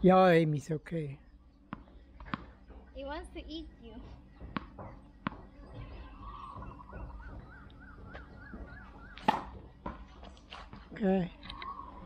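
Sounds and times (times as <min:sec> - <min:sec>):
ball bouncing on concrete: 0:01.7 - 0:02.9, 0:04.0 - 0:11.0.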